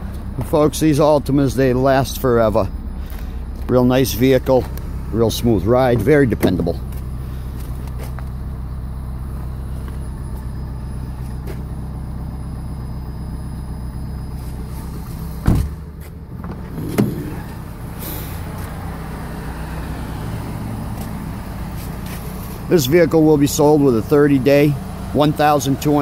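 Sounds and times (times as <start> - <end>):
car engine idling: 0.0 - 26.0
car door shutting: 5.9 - 8.2, 11.1 - 11.7, 14.3 - 18.8.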